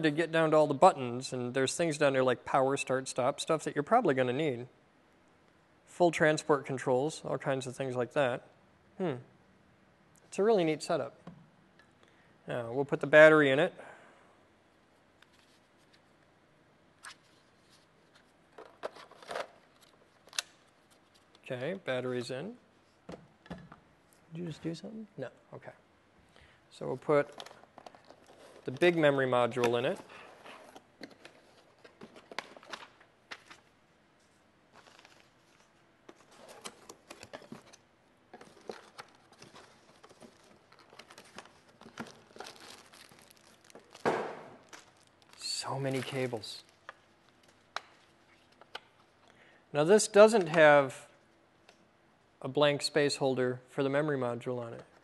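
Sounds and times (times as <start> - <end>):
packing rustling and crinkling: 27.2 - 29.2, 34.7 - 49.2.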